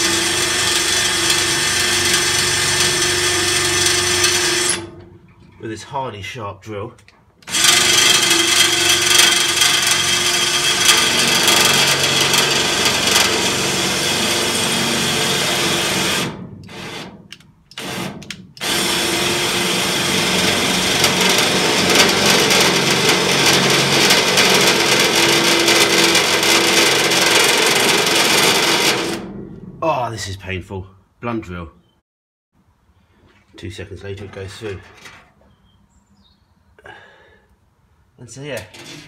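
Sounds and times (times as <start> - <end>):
power drill grinding into steel: 0.0 - 5.0, 7.4 - 29.4.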